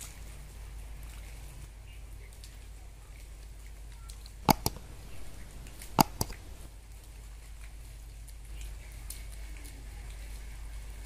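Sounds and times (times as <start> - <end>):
double mouse clicks: 4.5 - 6.7.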